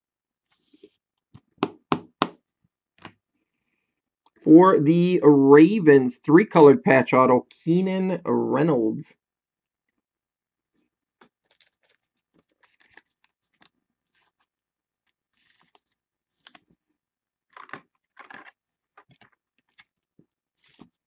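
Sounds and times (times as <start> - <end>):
faint clicks and rustles: 11.2 - 14.5.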